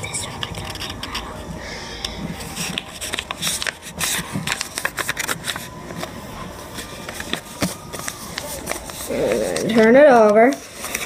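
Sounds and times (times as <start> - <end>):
paper rustling and crinkling: 2.4 - 11.0.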